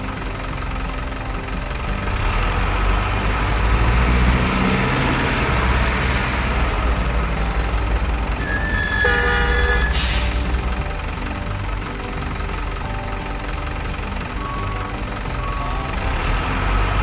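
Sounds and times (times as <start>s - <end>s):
model truck engine running: 0.0s - 17.0s
truck horn: 8.1s - 11.5s.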